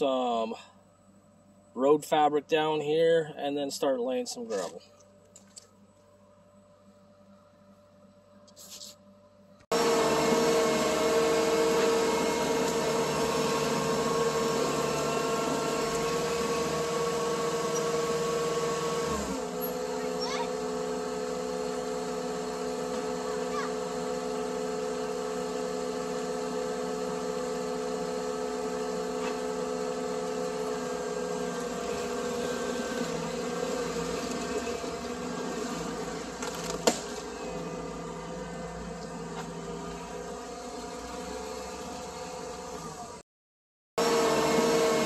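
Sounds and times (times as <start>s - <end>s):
diesel engine running: 9.2s - 43.2s.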